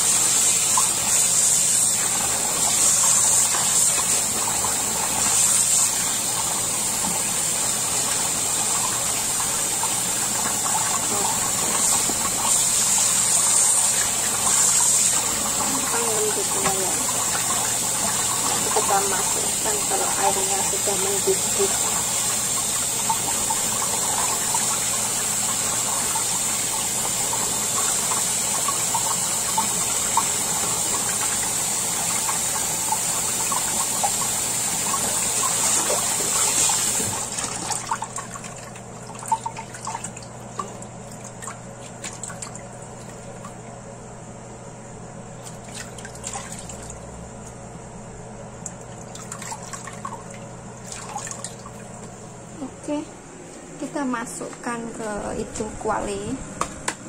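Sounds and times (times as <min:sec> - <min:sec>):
tap running into bowl of water: 0:08.1 - 0:12.6, 0:14.0 - 0:26.4
water splashes and drips: 0:28.0 - 0:43.7, 0:45.4 - 0:47.0, 0:48.6 - 0:52.2.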